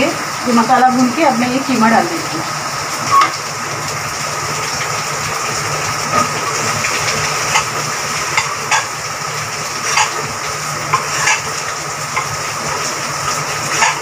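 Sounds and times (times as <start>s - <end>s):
meat sizzling: 2.0s - 14.0s
spoon scraping pot: 8.3s - 8.9s, 9.8s - 10.3s, 10.9s - 11.6s, 13.7s - 14.0s.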